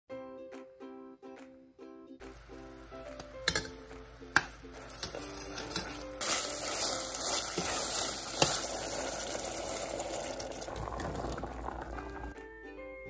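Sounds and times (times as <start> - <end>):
metal spoon scraping saucepan: 4.9 - 8.9
food hissing in hot pan: 6.2 - 10.7.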